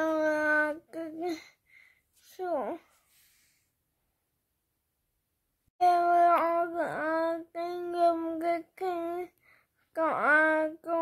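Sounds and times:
child singing: 0.0s - 1.4s, 5.8s - 11.0s.

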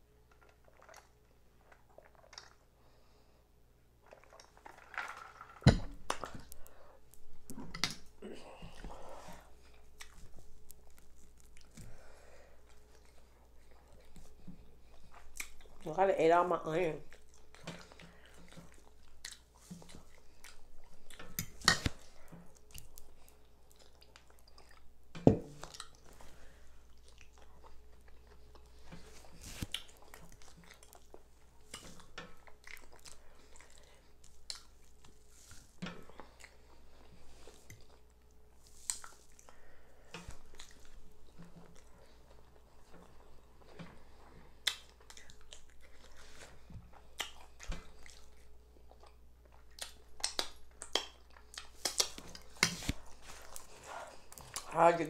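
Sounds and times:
person chewing: 6.0s - 15.8s, 17.0s - 54.8s.

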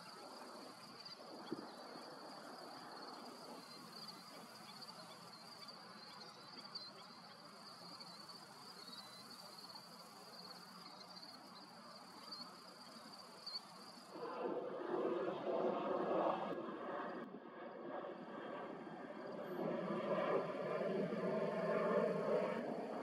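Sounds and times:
insects trilling: 0.0s - 14.2s
soft outdoor background noise: 0.0s - 23.0s.

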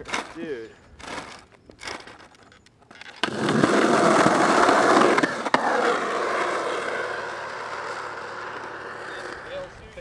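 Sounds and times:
skateboard rolling on concrete: 0.0s - 10.0s
skateboard wheels clacking: 3.2s - 10.0s.

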